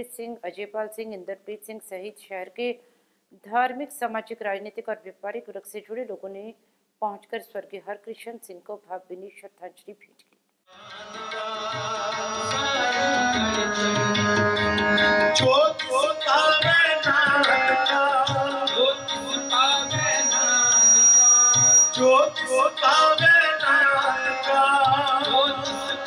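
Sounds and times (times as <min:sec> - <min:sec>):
harmonium playing: 0:10.7 - 0:26.0
person singing: 0:10.7 - 0:26.0
tabla beat: 0:10.8 - 0:26.0.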